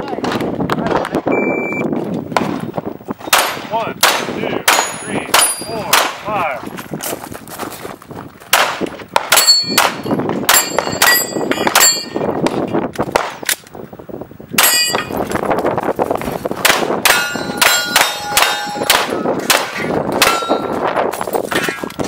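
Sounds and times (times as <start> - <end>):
pistol shots: 3.3 - 6.2, 8.5 - 11.9, 16.6 - 20.6
steel target plate clanging: 9.4 - 12.3, 14.6 - 15.2, 17.1 - 21.9.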